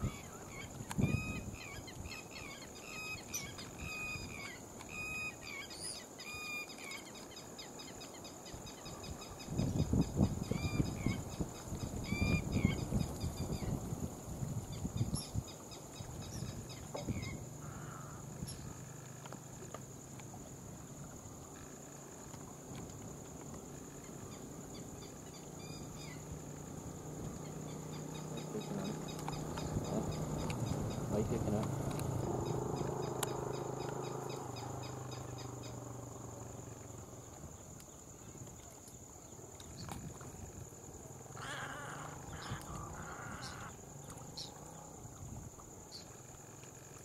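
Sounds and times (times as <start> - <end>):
low uneven rumble: 9.6 - 47.0.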